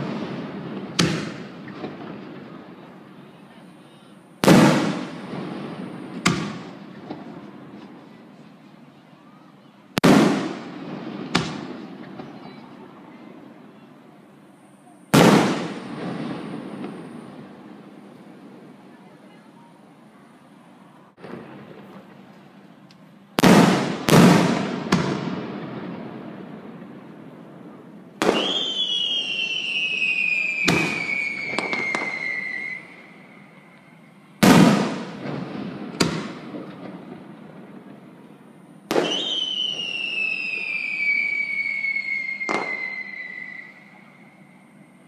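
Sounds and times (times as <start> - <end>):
firework whistle sliding down: 28.3 - 34.0, 39.0 - 44.6.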